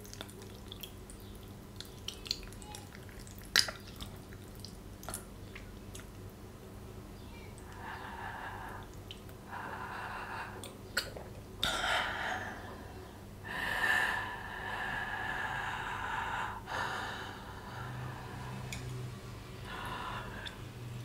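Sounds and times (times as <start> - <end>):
wet mouth click: 3.5 - 4.1
person breathing heavily: 7.7 - 10.8, 11.6 - 18.7, 19.6 - 20.8.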